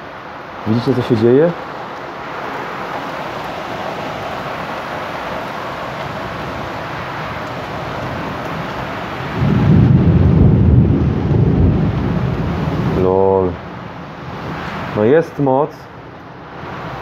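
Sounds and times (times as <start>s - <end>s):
heavy rain hissing: 0.0s - 17.0s
low rumble of thunder: 9.3s - 13.6s.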